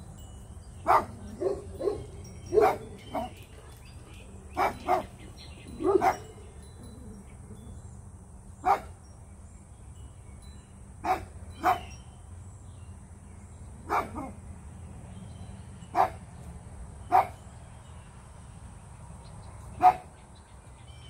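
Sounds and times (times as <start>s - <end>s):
dog barking: 0.8s - 3.8s, 4.5s - 5.2s, 5.8s - 6.4s, 8.6s - 8.9s, 11.0s - 11.9s, 13.9s - 14.4s, 16.0s - 16.2s, 17.1s - 17.4s, 19.8s - 20.1s.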